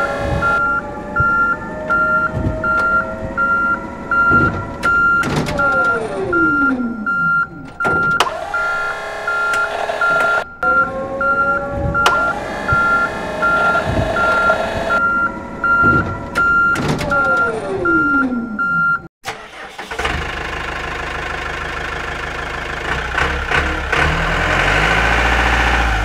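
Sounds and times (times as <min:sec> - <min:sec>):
whine changing pitch: 0:00.0 - 0:16.7
engine running: 0:00.0 - 0:17.9, 0:19.3 - 0:26.0
reversing alarm beeping: 0:00.0 - 0:19.1
knocks: 0:00.2 - 0:05.9, 0:15.7 - 0:17.4.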